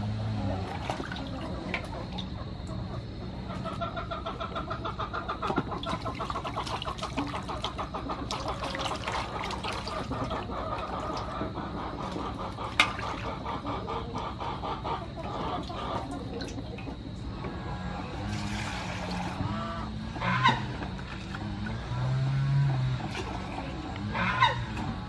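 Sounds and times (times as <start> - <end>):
water splashing in basin: 0.5 - 2.3, 5.5 - 13.8, 15.2 - 17.0, 18.1 - 19.5, 20.2 - 24.8
bird calling: 1.2 - 21.7.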